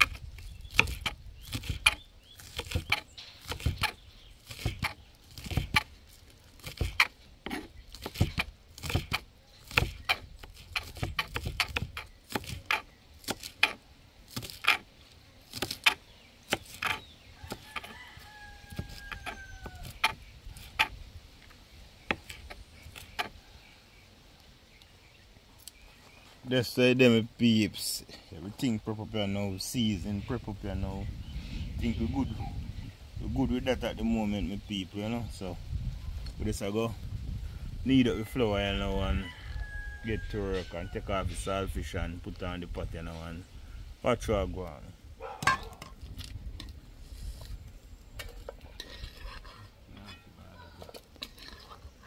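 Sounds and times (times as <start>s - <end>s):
knife chopping: 0.0s - 5.9s, 6.6s - 14.9s, 15.5s - 18.0s, 18.7s - 21.0s.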